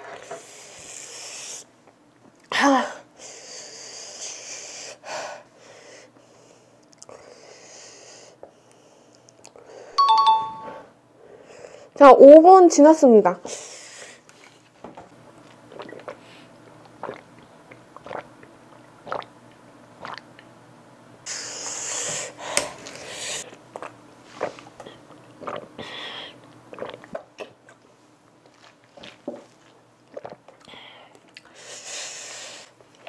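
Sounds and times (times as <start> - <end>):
person sniffing and breathing hard: 0.4 - 1.7, 3.2 - 9.0, 21.3 - 23.5, 31.5 - 32.8.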